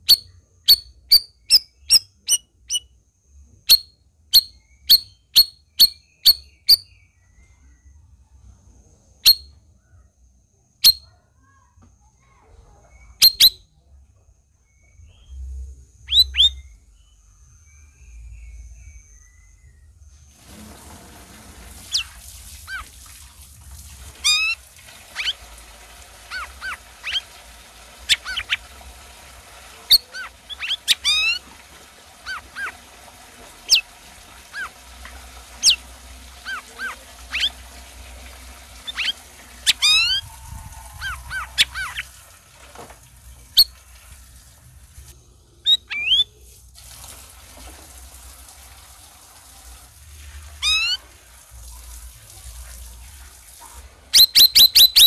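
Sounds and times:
songbird singing: 0:00.0 - 0:20.4, 0:21.7 - 0:22.9, 0:24.2 - 0:42.3, 0:45.2 - 0:46.5, 0:54.2 - 0:55.0
faint low hum: 0:06.9 - 0:46.8.

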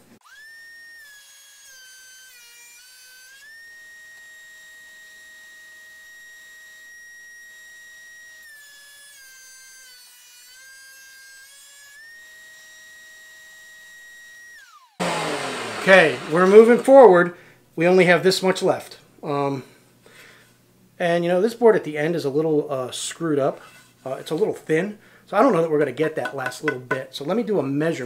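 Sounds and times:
thickness planer whine: 0:15.0 - 0:17.2, 0:26.2 - 0:27.1.

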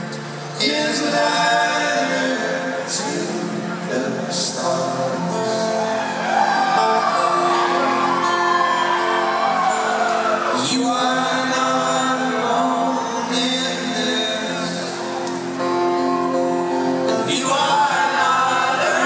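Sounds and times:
solo voice singing: 0:00.5 - 0:05.8, 0:10.4 - 0:15.2, 0:17.1 - 0:19.0
men singing in harmony: 0:00.6 - 0:06.5, 0:09.9 - 0:15.2, 0:17.1 - 0:19.0.

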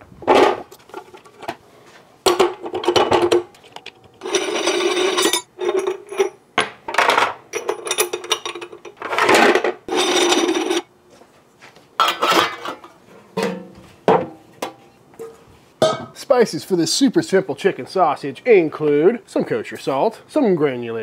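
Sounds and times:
metal parts scraping and clinking: 0:02.4 - 0:06.4, 0:07.0 - 0:10.9.

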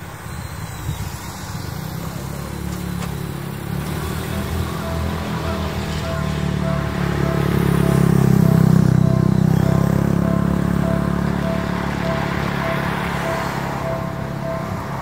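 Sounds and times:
motor scooter passing: 0:00.4 - 0:15.0
car passing: 0:01.5 - 0:15.0
level-crossing bell ringing: 0:03.8 - 0:15.0.

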